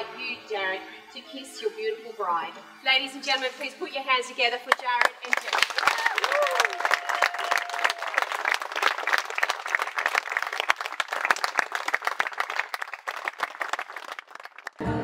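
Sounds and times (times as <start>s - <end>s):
crowd applauding: 4.7s - 15.0s.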